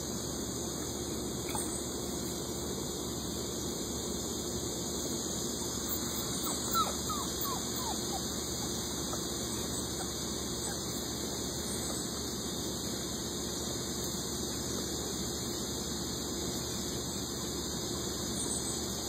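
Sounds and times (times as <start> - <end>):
steady hiss: 7.8 - 19.0.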